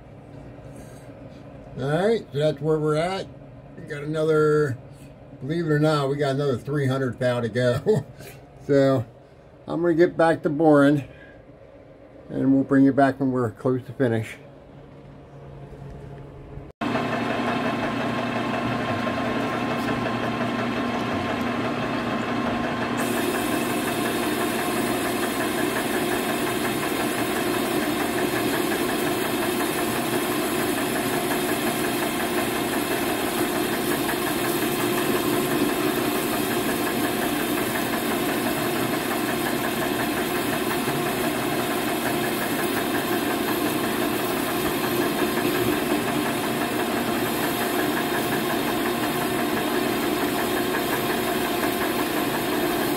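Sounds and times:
lathe motor hum: 16.8 - 52.9.

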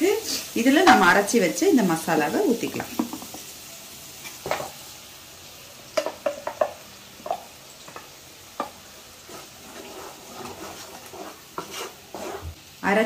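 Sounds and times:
paste sizzling in oil: 0.0 - 13.0
spatula scraping a steel jar: 9.3 - 12.6.

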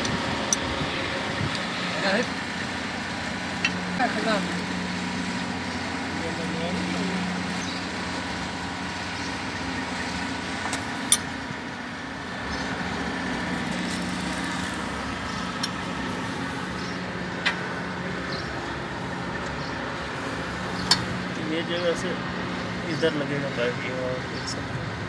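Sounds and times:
engine hum: 0.0 - 25.0
metal pipe clinking: 11.0 - 11.4.

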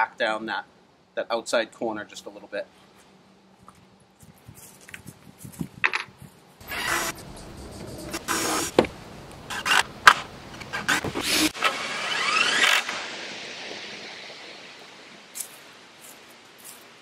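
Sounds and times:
cordless drill driving screws: 6.6 - 7.2, 10.8 - 13.0.

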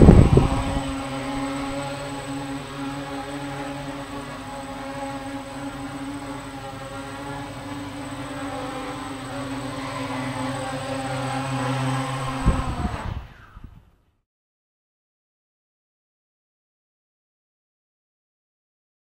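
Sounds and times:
quadcopter motors buzzing: 0.0 - 13.9.

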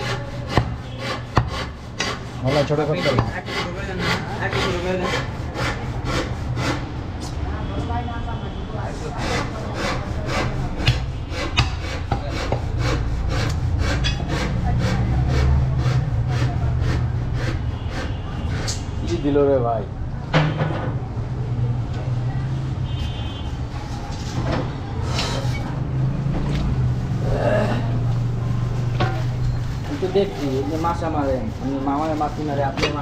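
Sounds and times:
cleaver chopping on wooden block: 0.5 - 2.2, 10.8 - 12.6.

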